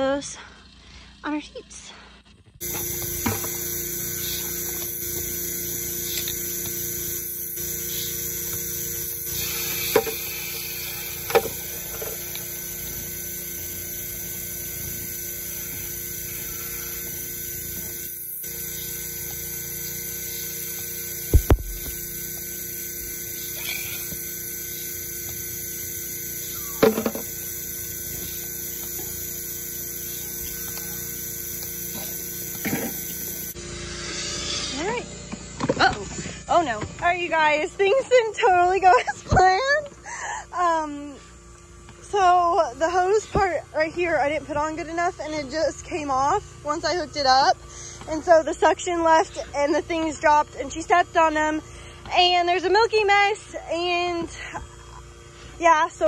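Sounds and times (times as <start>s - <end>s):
vacuum pump humming: 2.5s - 56.0s
heavy thump: 21.3s - 21.8s.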